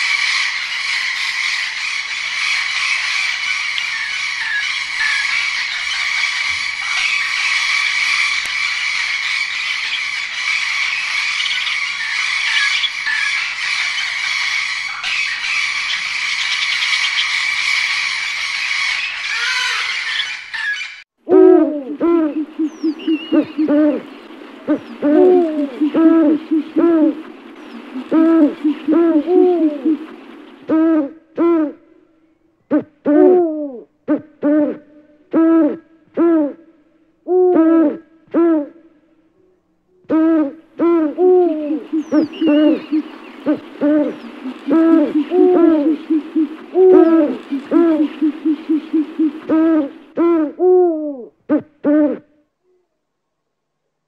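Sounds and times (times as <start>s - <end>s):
owl hooting: 0.0s - 31.8s, 32.7s - 36.7s, 37.3s - 38.8s, 40.1s - 53.0s.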